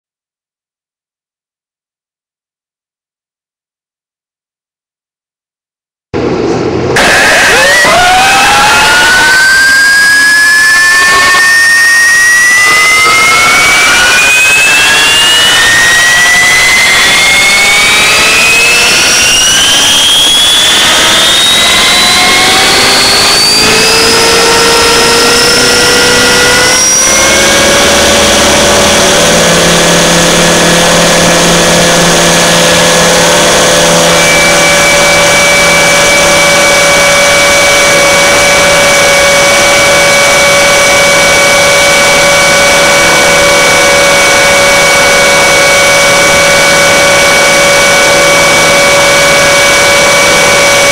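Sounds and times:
model helicopter motor and rotor: 10.2 - 50.9.

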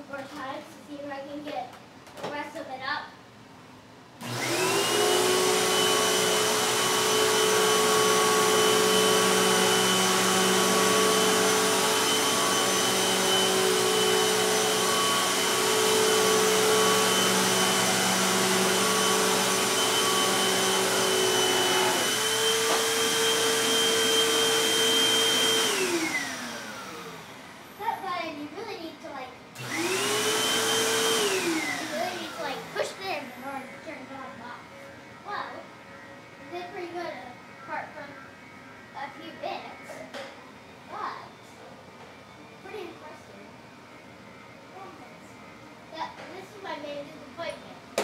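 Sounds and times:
vacuum cleaner motor whining: 4.2 - 27.9, 29.6 - 35.1.

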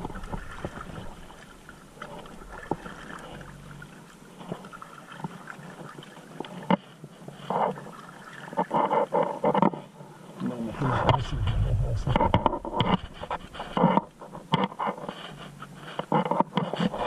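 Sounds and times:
paddle strokes and water splashing: 0.0 - 17.0
low wind rumble: 10.7 - 14.5.

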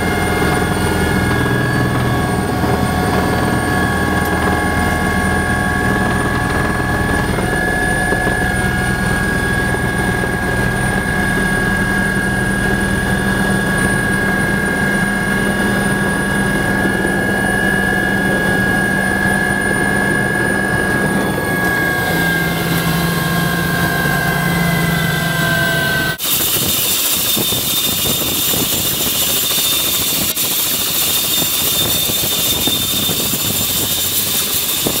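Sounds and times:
helicopter running outside: 0.0 - 35.0
helicopter whine inside cabin: 0.0 - 35.0.

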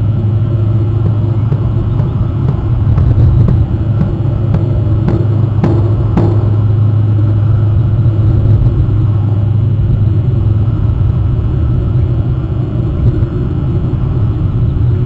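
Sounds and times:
loud low rumble: 0.0 - 15.0
noisy hiss: 0.0 - 15.0.

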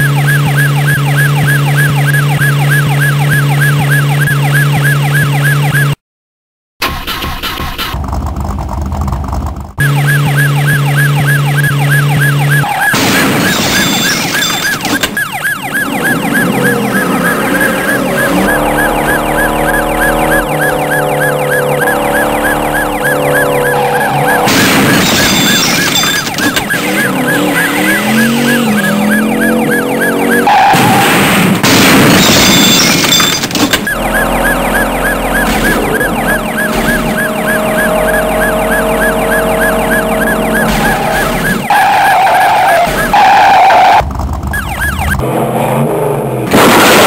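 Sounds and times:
police siren warbling: 0.0 - 6.0, 9.8 - 31.0, 32.5 - 45.2
rising revving sound: 15.8 - 24.5.

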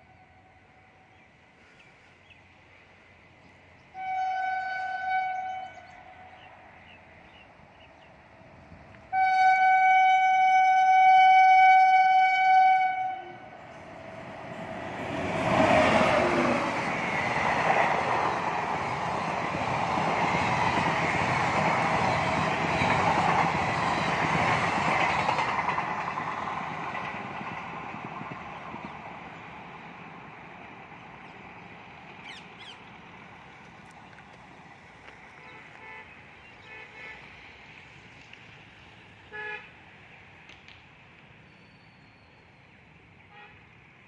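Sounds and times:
train rumbling past: 0.0 - 44.0
locomotive horn blast: 3.9 - 6.3, 9.1 - 13.6, 35.4 - 37.4, 39.3 - 39.8.

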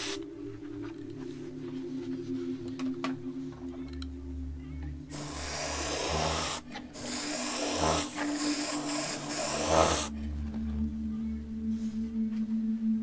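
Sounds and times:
airbrush hissing: 0.0 - 0.2, 5.1 - 10.2.

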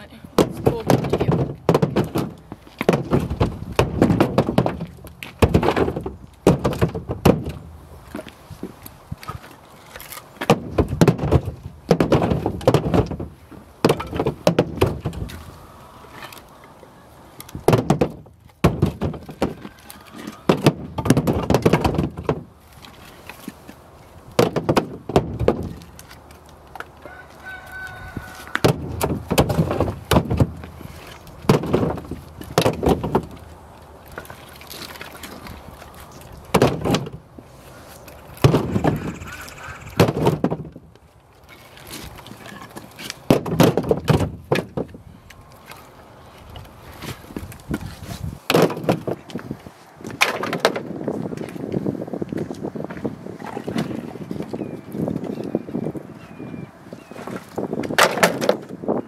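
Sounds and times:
firewood clattering onto pile: 28.4 - 33.4, 57.8 - 58.8.

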